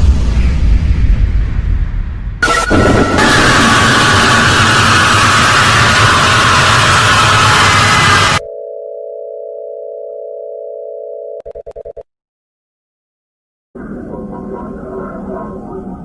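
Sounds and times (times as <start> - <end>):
loud harsh noise: 2.4 - 8.4.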